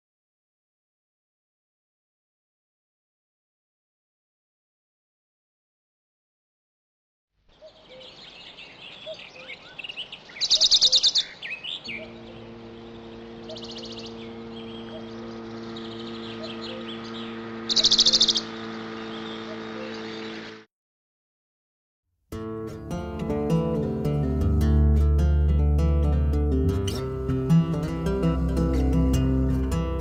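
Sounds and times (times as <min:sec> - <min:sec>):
birds chirping and calling: 0:07.5 - 0:20.6
bird fast trill: 0:07.6 - 0:20.6
steady low hum: 0:11.8 - 0:20.6, 0:25.8 - 0:30.0.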